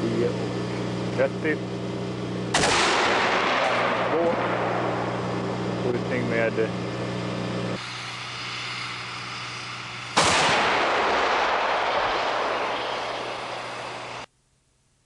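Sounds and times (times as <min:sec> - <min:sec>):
vehicle engine hum: 0:00.0 - 0:14.3
mortar firing blast: 0:02.5 - 0:05.8, 0:10.2 - 0:14.3.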